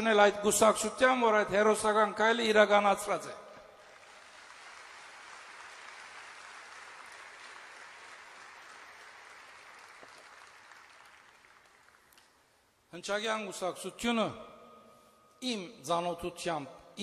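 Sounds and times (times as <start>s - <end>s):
audience applauding: 3.8s - 12.3s.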